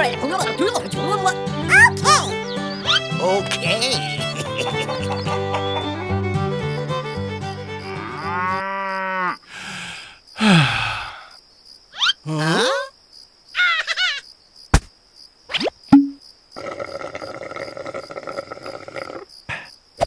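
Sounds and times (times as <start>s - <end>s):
cow mooing: 7.8s - 9.4s.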